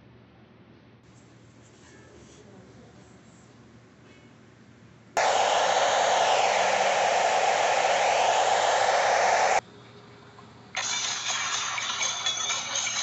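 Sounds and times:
loud tv static hiss: 5.2s - 9.6s.

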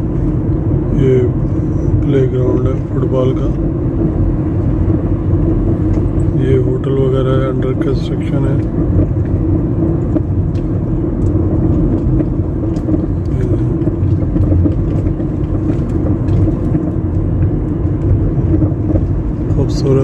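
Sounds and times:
car engine and tyre noise: 0.0s - 20.0s.

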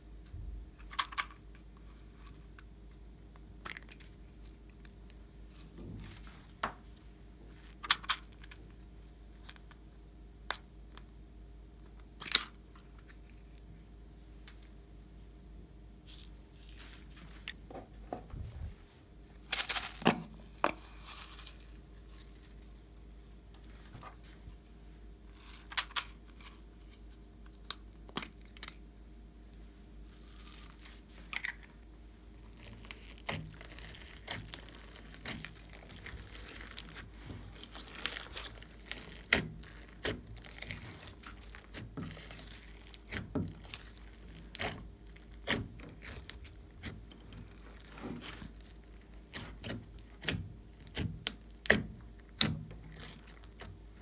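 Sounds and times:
slime crackling and popping: 32.4s - 54.0s.

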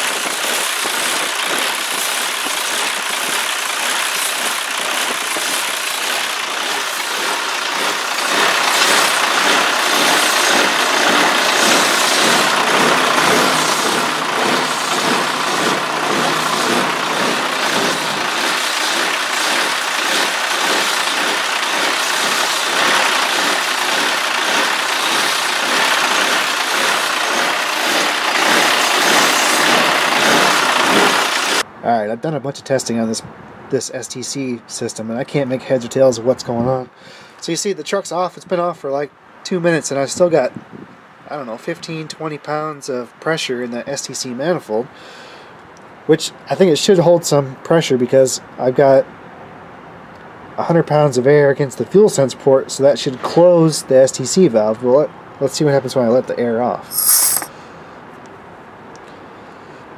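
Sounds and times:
diesel engine idling: 0.0s - 31.6s.

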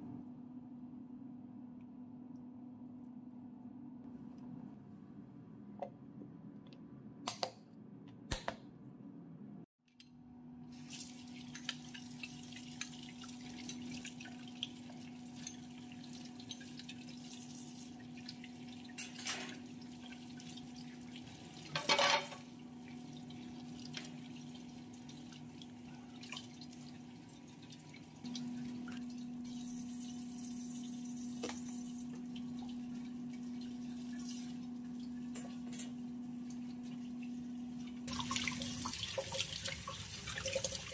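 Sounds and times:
utensils clattering: 18.9s - 19.6s, 21.7s - 22.5s.

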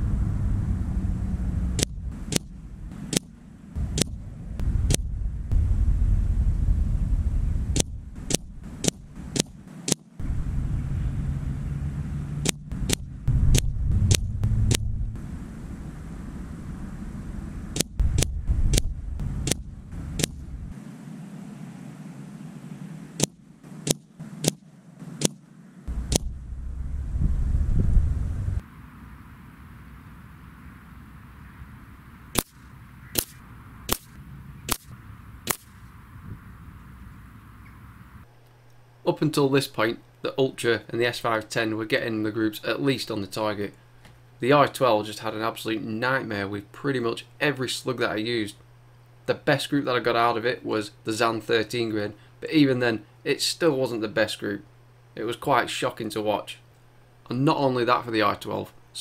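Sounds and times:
low wind rumble: 0.0s - 43.6s
air rifle shots: 1.8s - 5.6s, 7.7s - 10.3s, 12.4s - 15.5s, 17.7s - 21.4s, 22.2s - 26.4s, 32.3s - 36.0s.

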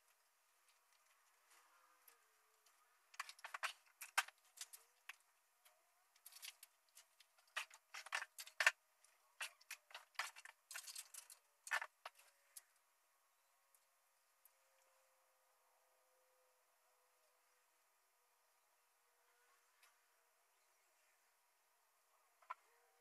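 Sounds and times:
small objects clicking and rustling: 0.0s - 12.8s.

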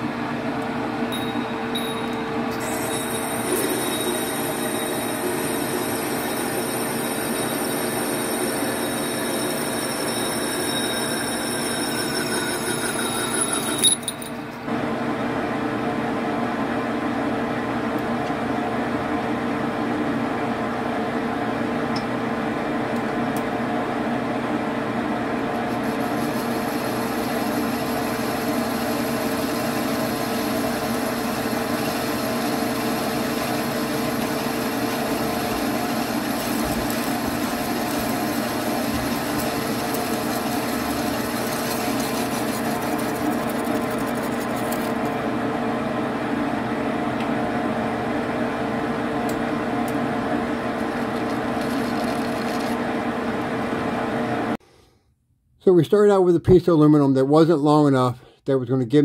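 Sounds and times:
high-pitched ringing: 1.1s - 14.5s
metal lathe cutting: 2.5s - 14.2s, 25.7s - 45.0s.

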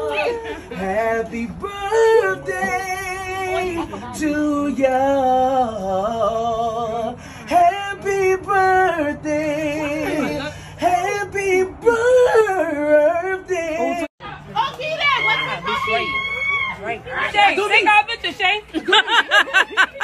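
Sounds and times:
person singing with vibrato: 0.0s - 14.1s.

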